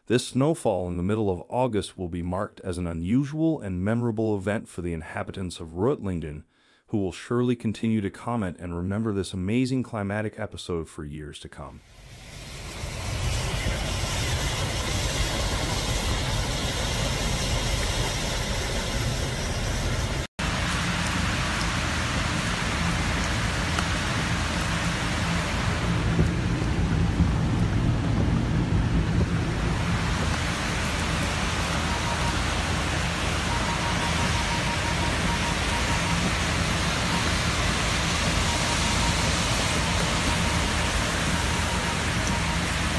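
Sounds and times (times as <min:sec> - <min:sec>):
car engine humming: 0:11.9 - 0:20.3
heavy rain and hail: 0:11.9 - 0:42.9.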